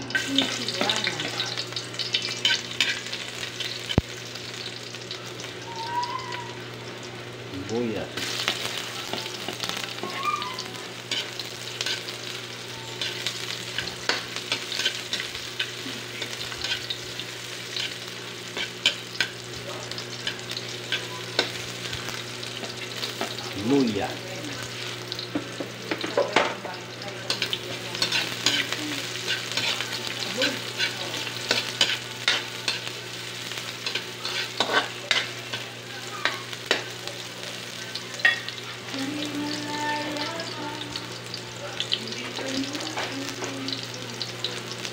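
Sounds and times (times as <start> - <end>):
food sizzling in a wok: 0.0 - 44.9.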